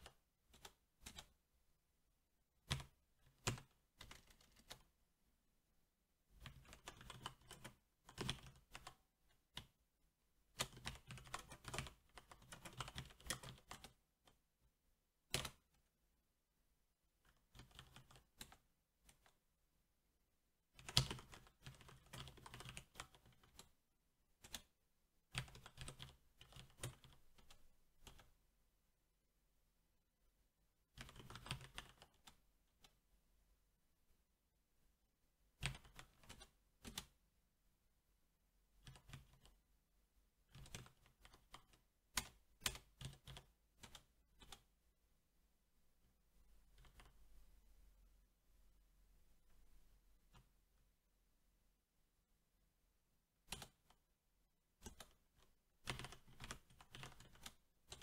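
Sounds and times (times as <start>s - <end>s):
mechanical keyboard typing: 0.0s - 1.4s, 2.6s - 4.9s, 6.4s - 9.7s, 10.6s - 14.0s, 15.3s - 15.7s, 17.3s - 19.3s, 20.8s - 23.7s, 24.4s - 24.7s, 25.3s - 28.3s, 31.0s - 32.4s, 35.6s - 37.2s, 38.8s - 39.5s, 40.5s - 44.7s, 53.5s - 53.9s, 54.8s - 58.0s.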